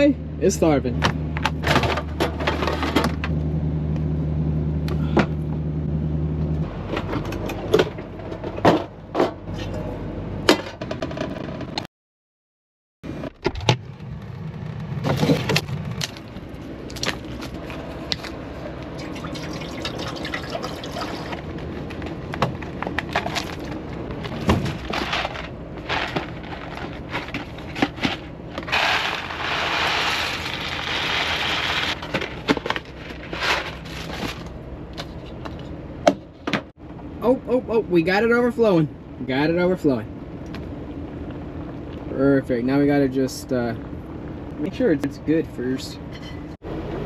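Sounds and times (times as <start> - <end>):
steady low hum: 13.1 - 47.0
rustling: 21.2 - 35.6.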